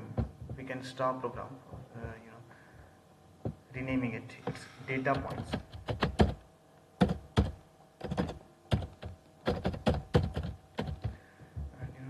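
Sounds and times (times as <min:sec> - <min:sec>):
keyboard typing: 0:05.1 - 0:06.4, 0:07.0 - 0:11.2.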